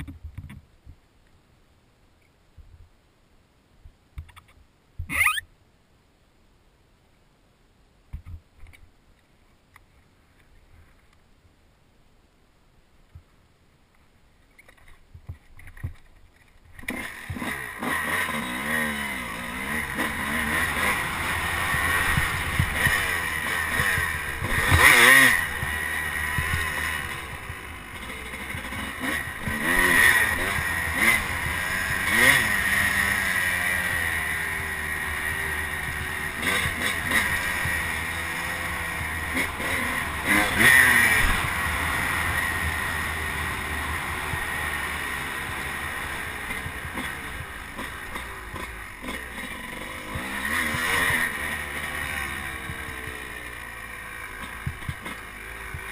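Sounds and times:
dirt bike engine revving: 0:16.8 - 0:55.9.

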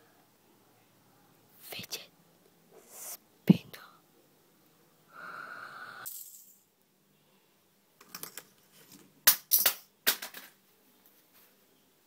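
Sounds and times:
short breathy vocal sound: 0:05.1 - 0:06.1.

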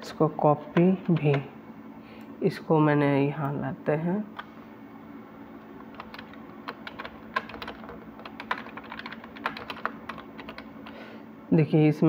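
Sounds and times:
computer keyboard clicks: 0:05.9 - 0:11.0.

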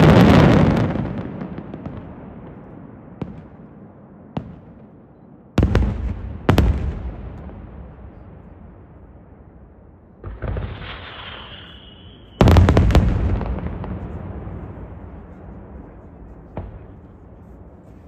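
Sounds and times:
fireworks bursting: 0:00.0 - 0:03.7, 0:10.2 - 0:18.0
heavy booms with rolling echo: 0:00.0 - 0:05.0, 0:05.6 - 0:17.5
sharp fireworks cracks: 0:00.0 - 0:05.0, 0:05.6 - 0:09.3, 0:10.2 - 0:18.0.

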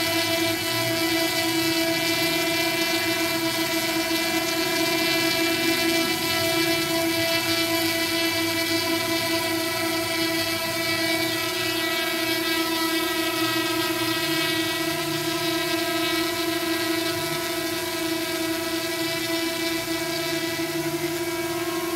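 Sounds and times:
drone propellers buzzing: 0:00.0 - 0:21.9.

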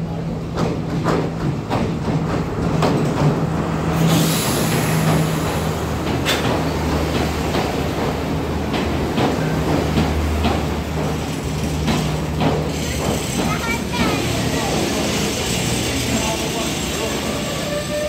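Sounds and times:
rumble of train coaches: 0:00.0 - 0:18.0
train engine hum: 0:00.0 - 0:18.0
wheels clacking over rail joints: 0:00.2 - 0:18.0
hiss: 0:04.0 - 0:06.0.

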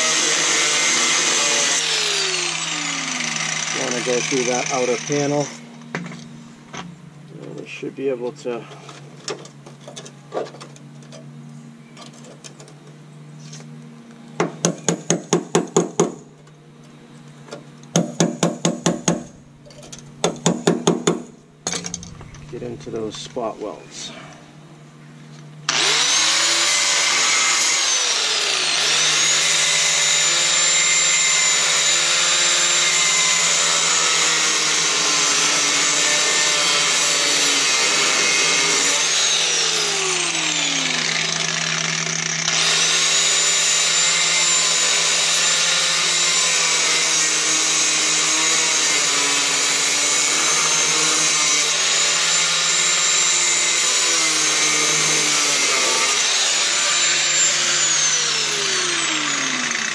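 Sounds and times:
grinder cutting steel: 0:00.0 - 0:05.7, 0:25.7 - 0:59.9.

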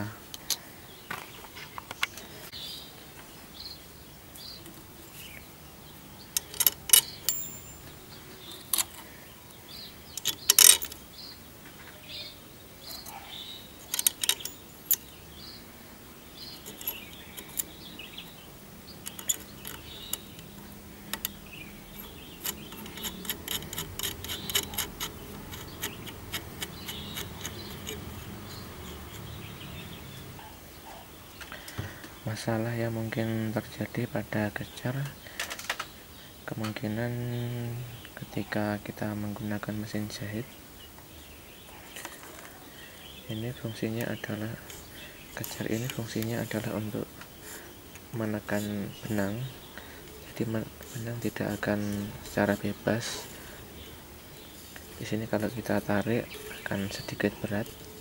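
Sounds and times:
small metal parts clicking: 0:00.3 - 0:00.6, 0:06.3 - 0:09.1, 0:10.1 - 0:11.0, 0:13.8 - 0:15.1, 0:16.4 - 0:17.9, 0:19.0 - 0:29.8, 0:44.6 - 0:49.2.

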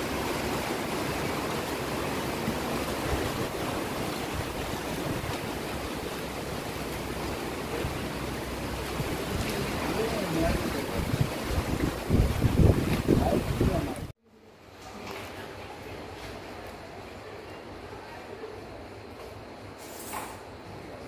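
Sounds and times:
wind noise on microphone: 0:07.8 - 0:14.1.

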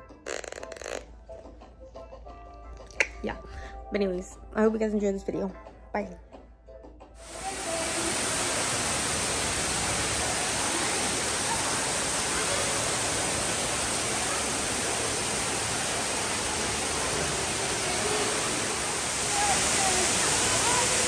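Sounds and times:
waterfall rushing: 0:07.2 - 0:21.0.

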